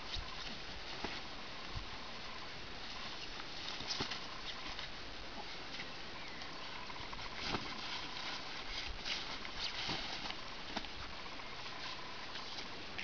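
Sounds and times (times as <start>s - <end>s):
fabric tunnel rustling: 0.0s - 13.0s
steady hiss: 0.0s - 13.0s
paws scrabbling and scuffing: 2.8s - 5.9s, 7.1s - 11.2s.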